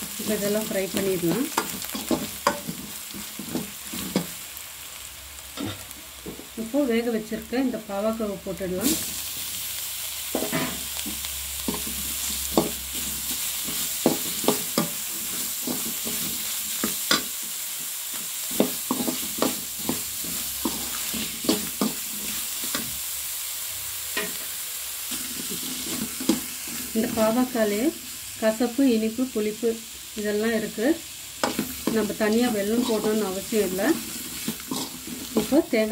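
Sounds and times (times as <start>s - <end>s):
food sizzling in a pan: 0.0s - 35.9s
metal spoon scraping a pan: 0.2s - 4.4s, 10.3s - 23.0s, 24.1s - 27.3s, 31.4s - 35.9s.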